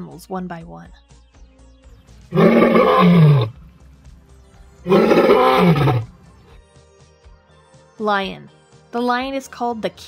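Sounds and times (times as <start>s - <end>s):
lion roaring: 2.3s - 3.6s, 4.9s - 6.1s.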